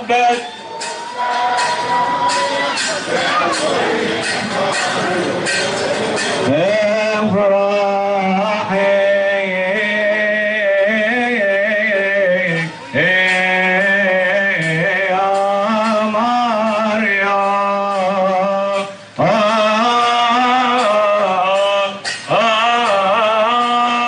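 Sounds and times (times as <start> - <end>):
man singing a hymn: 0.0 - 0.4, 6.5 - 24.0
crowd noise: 0.0 - 24.0.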